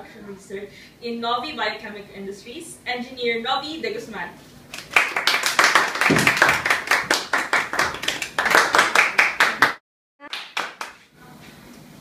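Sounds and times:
group clapping: 4.7s - 11.1s.

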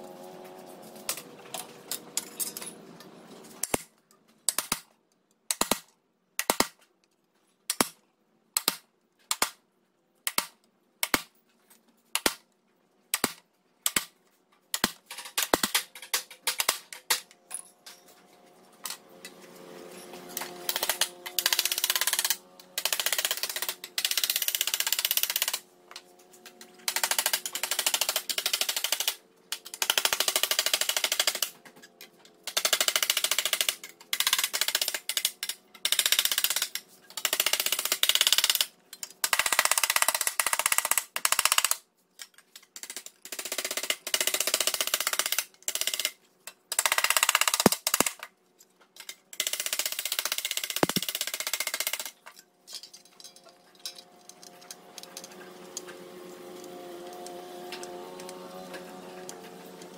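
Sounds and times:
sharp metal taps: 50.8s - 51.1s.

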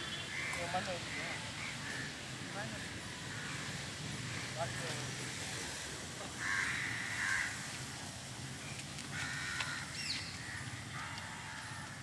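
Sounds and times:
outdoor background noise: 0.0s - 12.0s
crow cawing: 0.3s - 4.8s, 6.3s - 7.7s, 9.1s - 12.0s.

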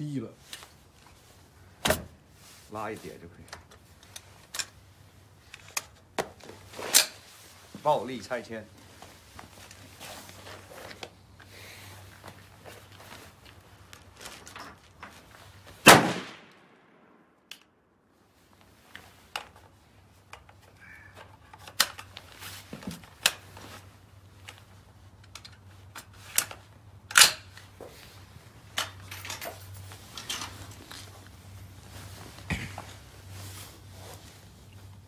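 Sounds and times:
rifle gunshots: 15.8s - 17.1s.

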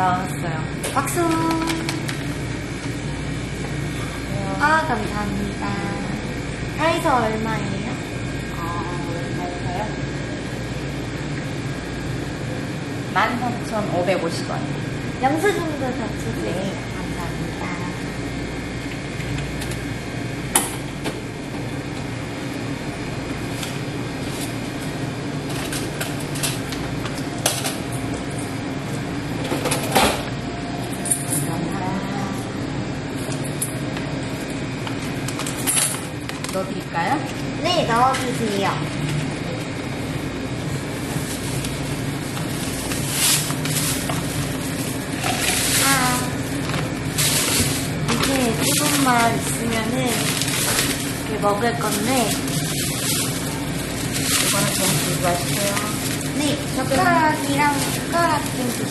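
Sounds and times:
store background hum: 0.0s - 58.9s
paper receipt and bag handling: 40.9s - 58.9s
paper rustling: 50.1s - 58.9s.

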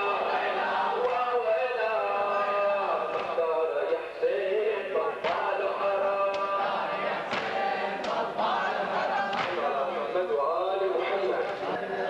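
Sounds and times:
men chanting in unison: 0.0s - 12.0s
chest-beating slaps: 7.3s - 8.2s, 9.3s - 9.6s.

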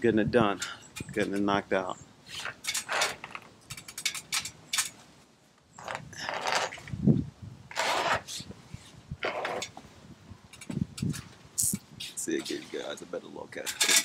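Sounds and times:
conduit rattling and scraping: 2.2s - 5.0s, 5.7s - 7.0s, 7.7s - 9.8s, 13.6s - 14.0s.

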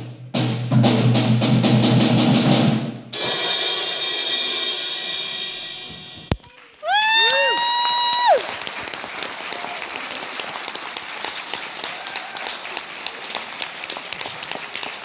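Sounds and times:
high-pitched cheer: 6.3s - 10.6s, 11.6s - 13.3s
audience applauding: 6.3s - 15.0s.

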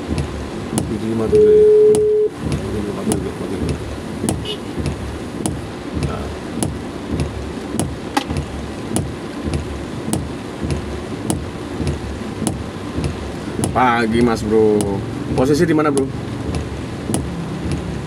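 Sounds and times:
low rumble of car: 0.0s - 18.0s
rain on a car roof: 0.0s - 18.0s.

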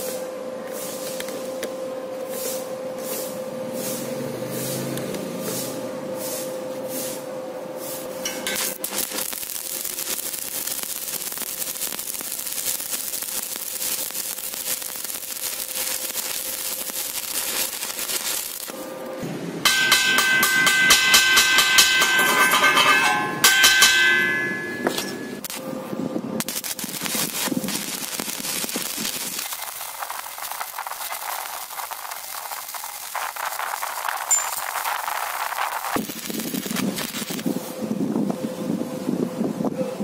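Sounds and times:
welding arc hissing and crackling: 2.3s - 19.1s, 19.7s - 25.7s, 26.4s - 37.7s
metal-on-metal strikes with ringing: 8.2s - 8.8s, 19.6s - 25.5s.

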